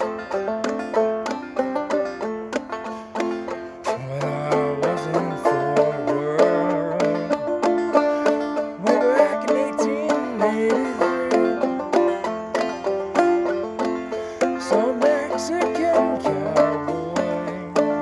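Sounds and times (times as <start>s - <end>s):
clawhammer banjo: 0.0s - 18.0s
man singing: 3.8s - 12.2s, 14.5s - 18.0s.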